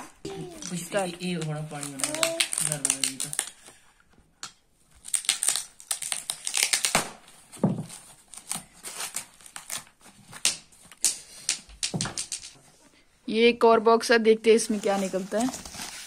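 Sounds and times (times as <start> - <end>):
foam wrap crackling and rustling: 0.2 - 3.8, 4.9 - 11.0, 14.4 - 16.0.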